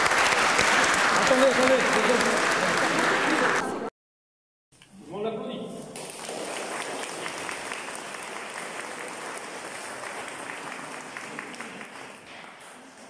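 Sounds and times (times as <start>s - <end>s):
audience applauding: 0.0s - 3.9s, 6.0s - 13.0s.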